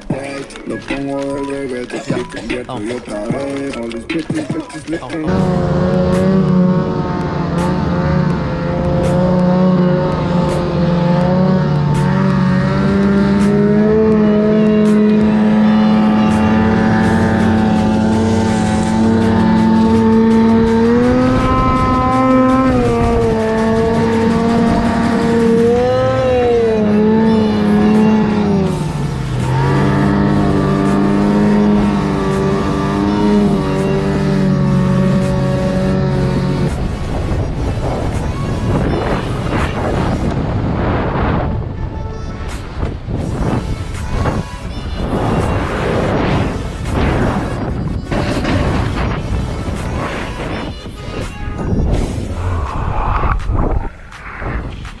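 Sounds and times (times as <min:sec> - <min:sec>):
snowmobile engine revving hard: 0:05.3 - 0:41.4.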